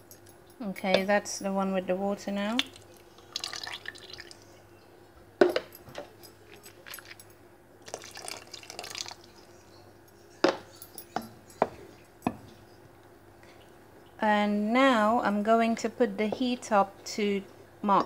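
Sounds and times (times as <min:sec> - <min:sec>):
water trickling and dripping: 0:02.5 - 0:04.6, 0:07.8 - 0:09.9.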